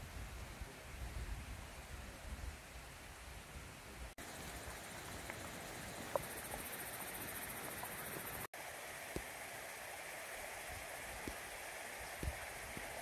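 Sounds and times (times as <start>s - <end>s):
forest rushing noise: 4.0s - 13.0s.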